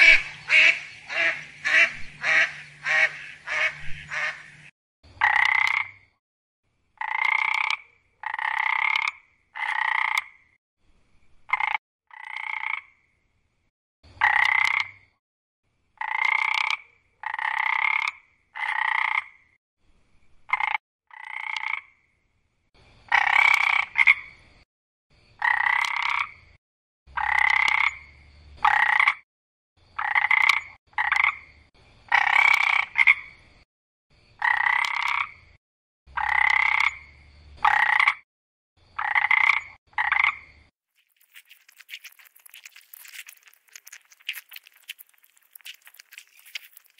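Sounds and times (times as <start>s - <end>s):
frog croaking: 0.0s - 4.6s, 5.2s - 6.2s, 7.0s - 10.5s, 11.5s - 13.0s, 14.2s - 15.1s, 16.0s - 19.5s, 20.5s - 22.0s, 23.1s - 24.3s, 25.4s - 26.4s, 27.1s - 29.2s, 30.0s - 31.5s, 32.1s - 33.4s, 34.4s - 35.5s, 36.1s - 38.2s, 39.0s - 46.9s.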